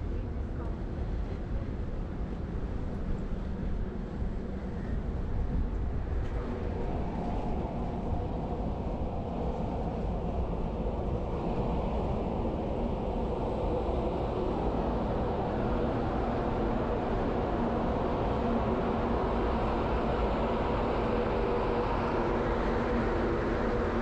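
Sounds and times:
ship machinery and fans humming: 0.0s - 24.0s.

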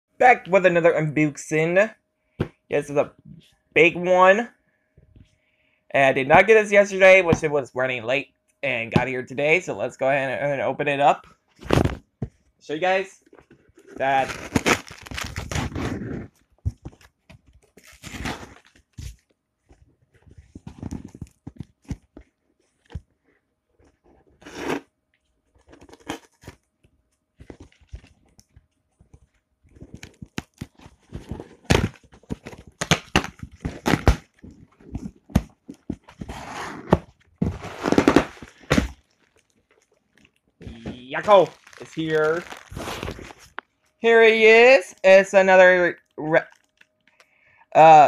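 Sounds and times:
packaging tearing and crinkling: 14.0s - 16.2s, 17.7s - 19.2s, 25.6s - 26.7s, 29.8s - 36.6s, 37.4s - 43.6s.

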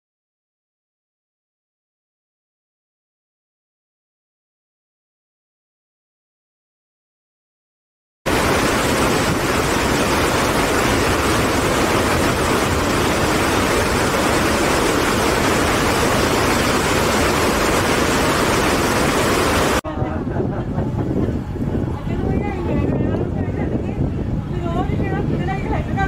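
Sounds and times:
river rapids rushing: 8.3s - 19.8s.

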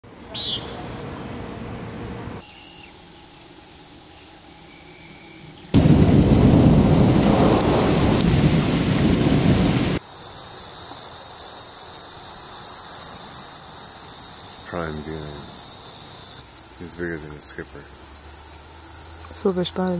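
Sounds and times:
high-pitched insect chorus: 2.4s - 19.9s
heavy rain: 5.8s - 10.0s, 14.6s - 15.6s, 16.7s - 19.9s
low rumble: 5.8s - 10.0s.

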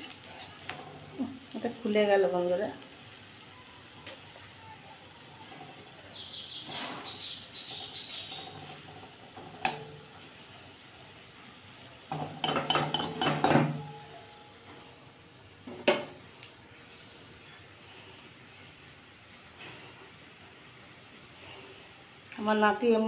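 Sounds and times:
oil sizzling: 0.0s - 23.0s
metal spoon scraping and knocking pan: 7.8s - 10.1s, 12.1s - 14.1s.

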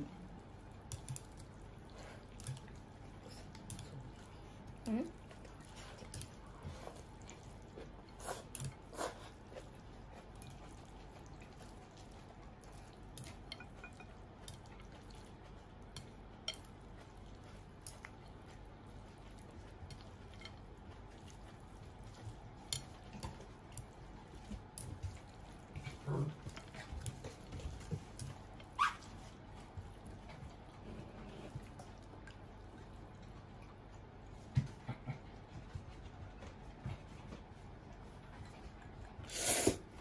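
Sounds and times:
chopsticks clicking against bowl: 0.9s - 1.5s, 2.3s - 2.8s, 12.7s - 15.3s, 15.9s - 17.1s, 17.8s - 18.4s, 19.9s - 24.0s.

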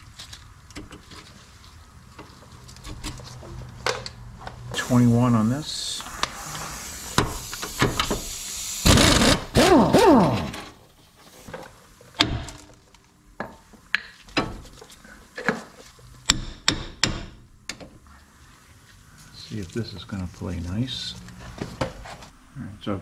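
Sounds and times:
pneumatic tool whirring: 6.1s - 10.7s.

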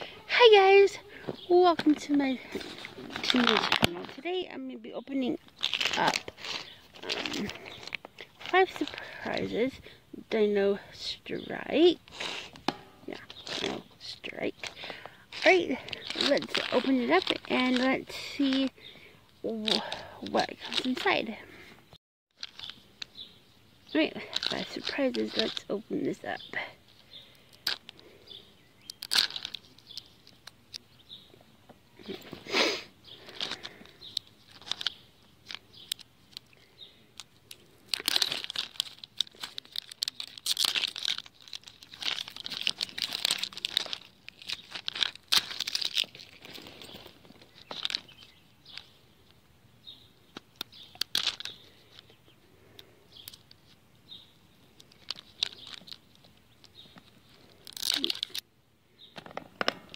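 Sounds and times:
plastic wrapper crinkling and tearing: 1.8s - 4.4s, 5.1s - 9.4s, 13.1s - 18.8s, 19.5s - 21.1s, 22.4s - 23.1s, 24.2s - 26.3s, 27.3s - 28.1s, 28.8s - 30.6s, 33.2s - 48.9s, 50.4s - 52.1s, 53.2s - 53.8s, 54.7s - 58.4s.

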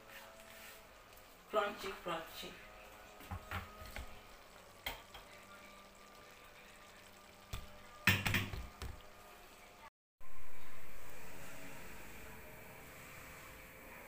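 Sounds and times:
knocks in kitchen: 3.2s - 4.1s, 7.5s - 9.0s.

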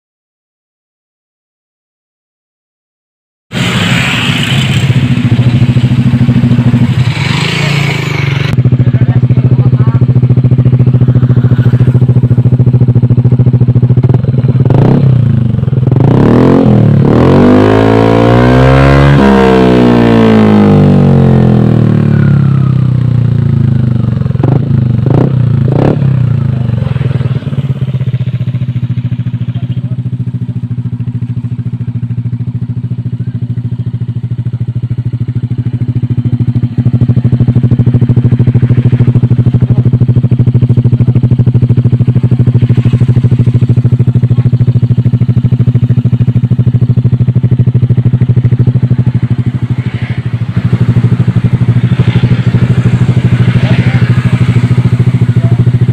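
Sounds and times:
scooter engine idling: 3.6s - 16.2s, 19.8s - 55.9s.

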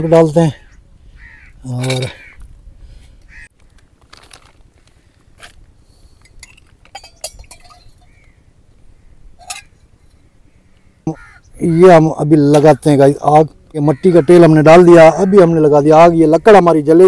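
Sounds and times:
spoon clinking on cups: 6.4s - 8.1s.

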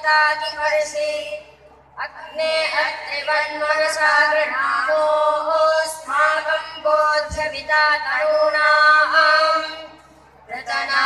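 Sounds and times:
boys singing prayer in unison: 2.1s - 9.9s, 10.5s - 11.0s.

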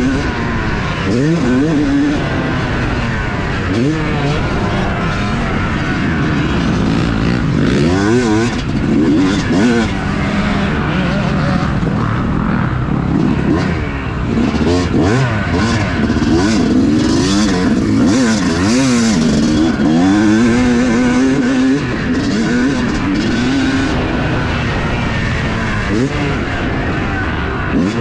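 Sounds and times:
dirt bike engine revving: 0.0s - 28.0s.

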